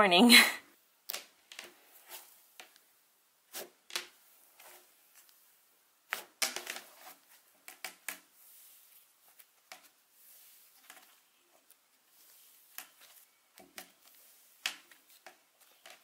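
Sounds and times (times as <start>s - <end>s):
slime squishing by hand: 6.1s - 16.0s.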